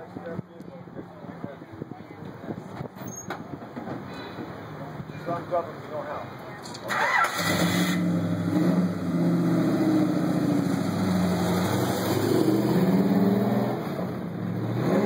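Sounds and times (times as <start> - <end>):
car engine idling and revving: 6.7 - 15.0.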